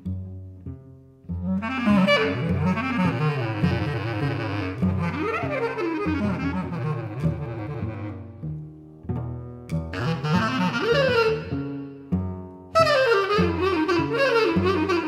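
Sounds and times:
low cello notes: 0:00.0 - 0:15.0
reed wind instrument runs: 0:01.6 - 0:08.1, 0:10.0 - 0:11.7, 0:12.8 - 0:15.0.

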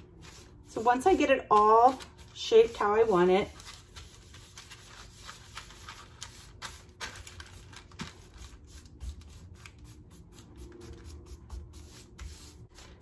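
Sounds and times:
parchment paper crinkling: 0:00.0 - 0:13.0.

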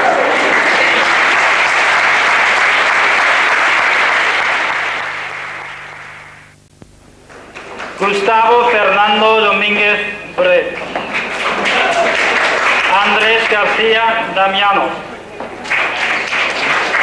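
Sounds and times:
audience applauding: 0:00.0 - 0:06.4, 0:07.3 - 0:08.0, 0:10.6 - 0:14.2, 0:15.4 - 0:17.0.

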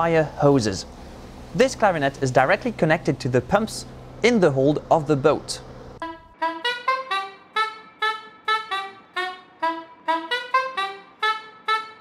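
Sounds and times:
saxophone staccato tune: 0:06.0 - 0:12.0.

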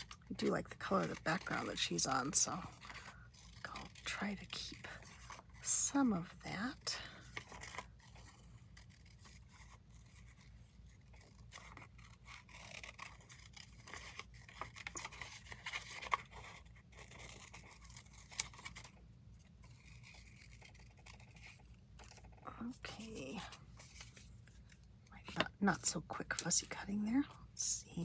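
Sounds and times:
scissors snipping paper: 0:07.3 - 0:10.4, 0:11.1 - 0:18.9.

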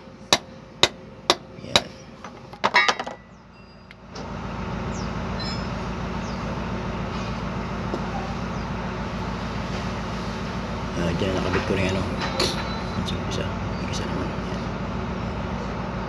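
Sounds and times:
low engine hum: 0:00.0 - 0:16.0
hammer striking steel: 0:00.3 - 0:01.9.

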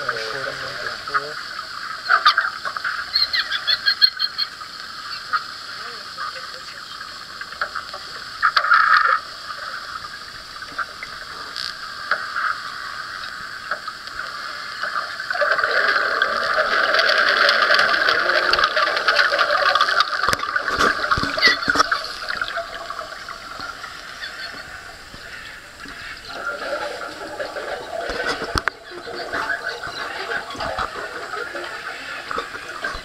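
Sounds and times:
dense crackling: 0:00.0 - 0:33.0
underwater rushing: 0:00.0 - 0:33.0.

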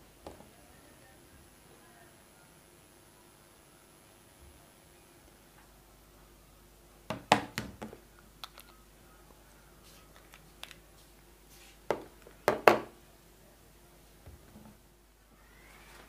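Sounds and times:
plastic clicks handling earbuds case: 0:08.4 - 0:08.8.

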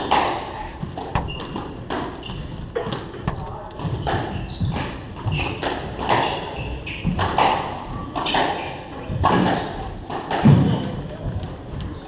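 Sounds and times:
shoe squeaks: 0:00.1 - 0:07.6, 0:08.2 - 0:08.9, 0:11.7 - 0:12.0
footsteps on wooden floor: 0:00.6 - 0:05.5.

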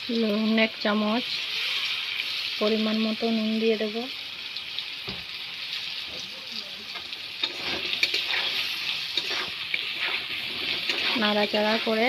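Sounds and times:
vegetables sizzling in a pan: 0:00.0 - 0:12.0
spatula scraping a pan: 0:07.4 - 0:12.0.

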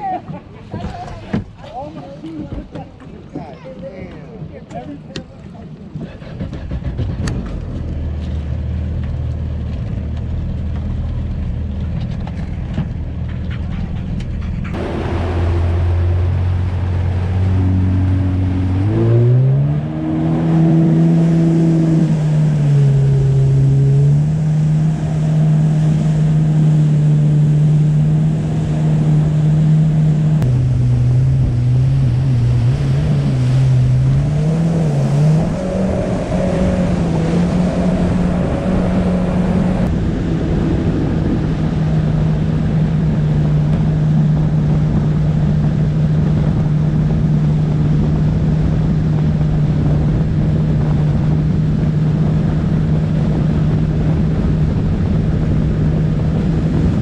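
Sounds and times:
jet ski engine: 0:00.0 - 0:57.0
rushing water: 0:13.9 - 0:57.0.

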